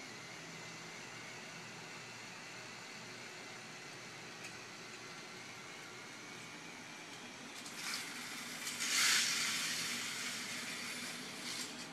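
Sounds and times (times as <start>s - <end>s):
toy roller coaster car rattling: 7.5s - 11.9s.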